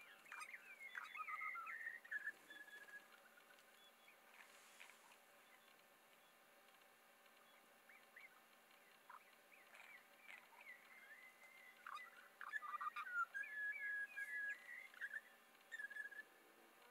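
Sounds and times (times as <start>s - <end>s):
bird calling whistles and gurgles: 0.0s - 5.7s, 9.0s - 16.3s.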